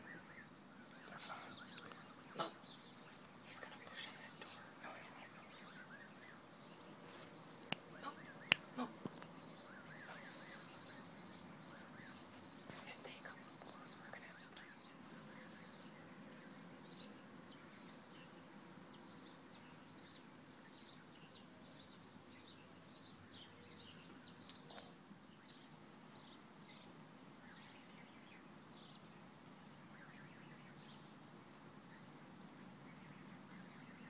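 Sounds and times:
goslings peeping: 1.8s - 2.9s.

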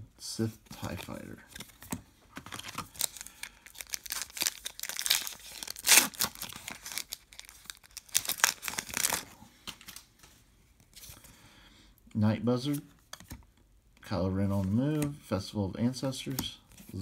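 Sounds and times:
foil wrapper crinkling: 2.5s - 9.3s
foil wrapper ripping: 2.6s - 9.3s.

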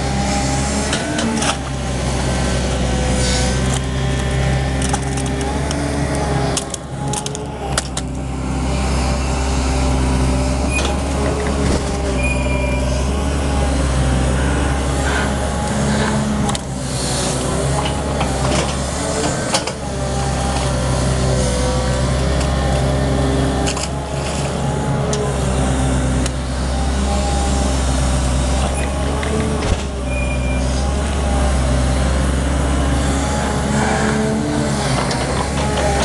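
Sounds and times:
excavator diesel engine drone: 0.0s - 36.0s.

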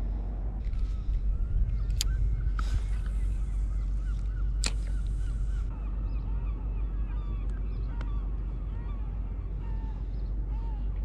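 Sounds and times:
low rumble: 0.0s - 11.0s
birds calling: 0.5s - 11.0s
sharp clicks: 1.7s - 2.2s, 4.2s - 5.4s.

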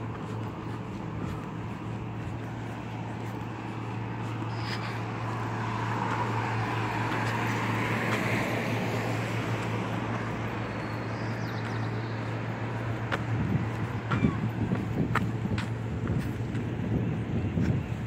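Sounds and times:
vehicle passing: 0.0s - 18.0s.

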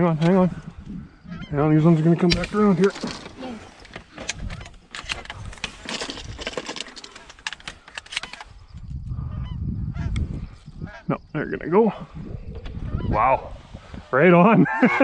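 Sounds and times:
geese honking faintly: 0.4s - 2.2s, 10.8s - 12.0s, 12.8s - 13.6s
gear clicking and rustling: 1.9s - 8.9s.

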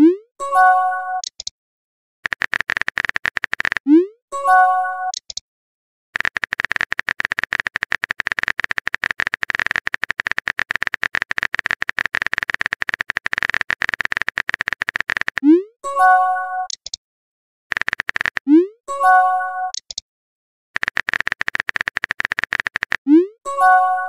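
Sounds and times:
phone keyboard typing clicks: 1.2s - 1.5s, 2.2s - 3.9s, 5.1s - 5.4s, 6.2s - 15.6s, 16.6s - 17.0s, 17.7s - 18.6s, 19.7s - 20.0s, 20.8s - 24.0s
notification chime: 4.4s - 5.1s, 15.9s - 16.7s, 23.5s - 24.0s.

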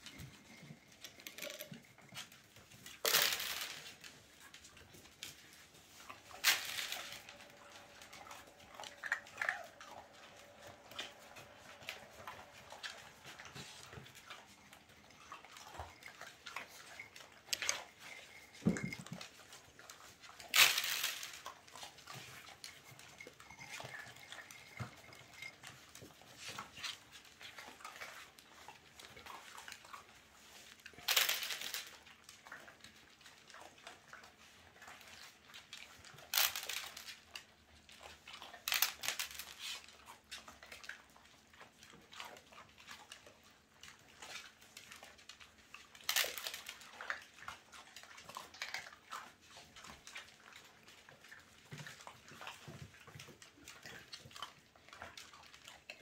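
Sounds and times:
dogs crunching dry kibble: 0.0s - 56.0s.

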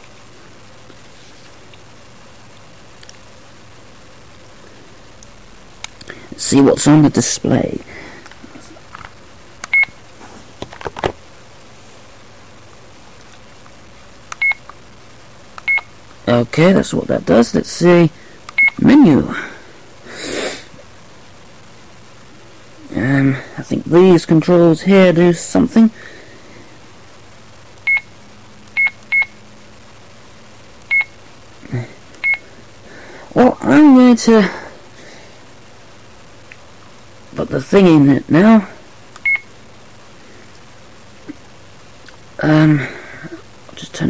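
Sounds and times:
camcorder beep: 9.7s - 10.0s, 14.4s - 14.6s, 15.6s - 15.9s, 18.5s - 18.8s, 27.9s - 28.1s, 30.9s - 31.1s, 32.2s - 32.4s, 39.2s - 39.5s.

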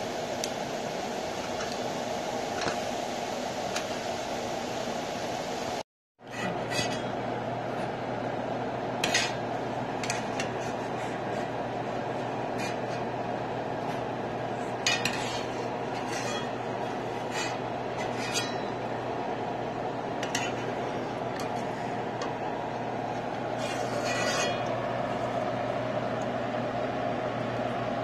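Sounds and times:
steady background hum: 0.0s - 28.0s.

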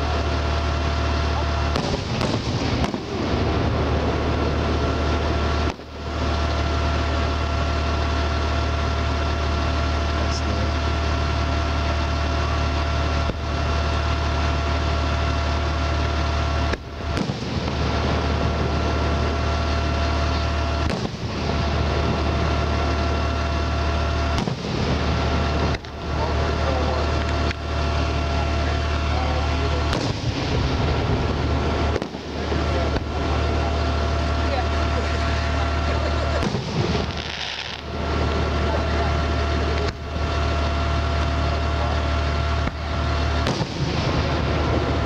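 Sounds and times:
loud mechanical drone: 0.0s - 45.0s
firework shells bursting: 1.6s - 5.8s, 16.0s - 26.0s, 29.8s - 34.4s, 35.1s - 38.6s, 42.6s - 45.0s.

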